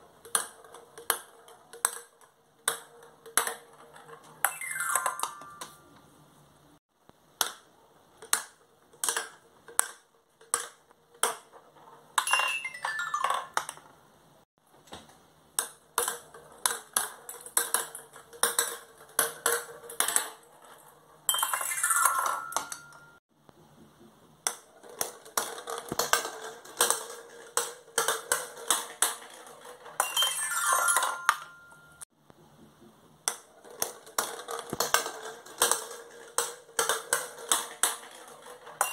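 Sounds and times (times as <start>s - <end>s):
plastic balls clicking and rattling: 0.0s - 5.8s, 7.3s - 13.9s, 15.5s - 23.2s, 24.4s - 32.0s, 33.2s - 38.9s
toy xylophone notes: 4.4s - 5.9s, 12.2s - 13.6s, 21.3s - 23.2s, 30.0s - 32.0s.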